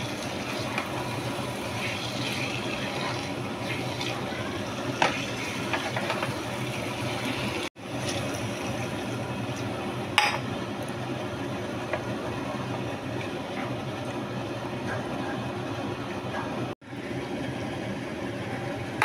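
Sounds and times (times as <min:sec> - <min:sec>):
water pouring into a pan: 0:00.0 - 0:04.4.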